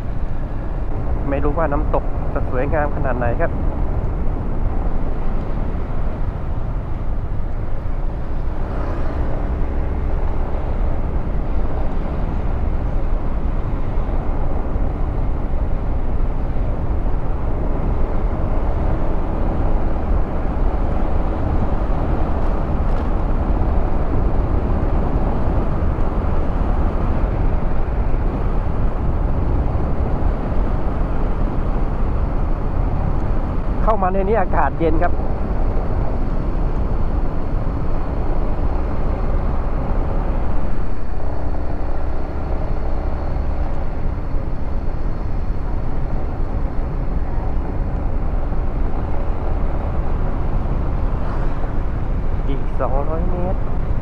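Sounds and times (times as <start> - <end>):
road noise: 0.0 - 54.0
wind rush: 0.0 - 54.0.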